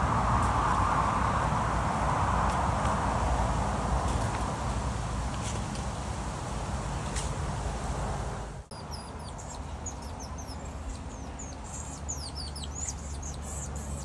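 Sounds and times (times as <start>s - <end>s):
outdoor background rush: 0.0s - 14.0s
monkeys chirping and whistling: 8.7s - 14.0s.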